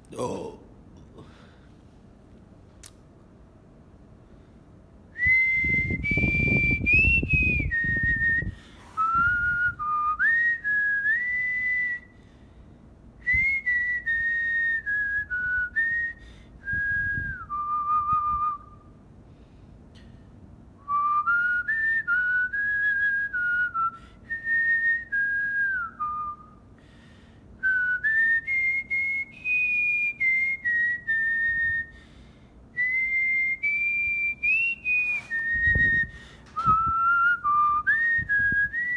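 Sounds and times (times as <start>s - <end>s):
man whistling a tune: 5.1s - 12.2s, 13.2s - 19.0s, 20.8s - 26.7s, 27.6s - 32.1s, 32.8s - 38.9s.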